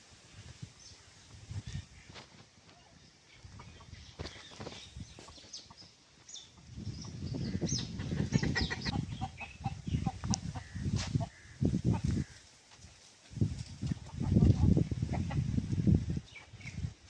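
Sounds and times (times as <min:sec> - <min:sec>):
chickens clucking: 0:03.4 - 0:12.4, 0:13.8 - 0:15.8
rustling buffeting noise: 0:06.6 - 0:17.0.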